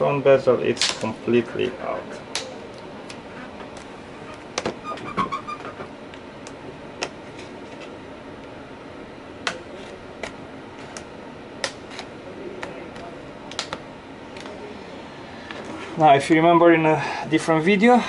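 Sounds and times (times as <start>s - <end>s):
plastic clips snapping: 10.2s - 13.8s.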